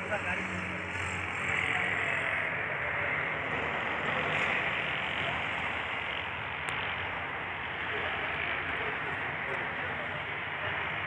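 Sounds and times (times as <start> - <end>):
vehicle rumble and hiss: 0.0 - 11.0.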